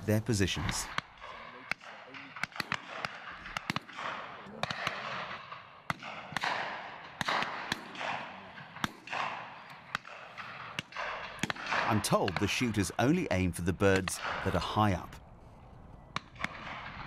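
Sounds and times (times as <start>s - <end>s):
shotgun shots with echo: 0.6s - 12.7s, 16.2s - 17.0s.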